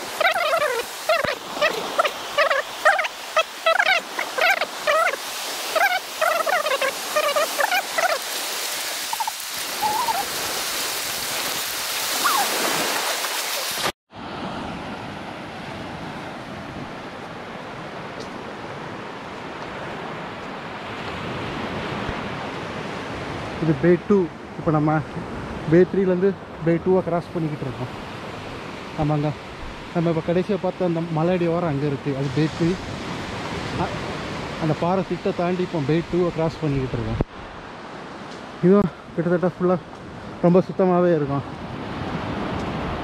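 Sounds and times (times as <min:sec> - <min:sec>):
birds calling: 0:00.0 - 0:10.4, 0:12.1 - 0:13.9
surf washing onto beach: 0:00.0 - 0:23.6, 0:27.4 - 0:43.0.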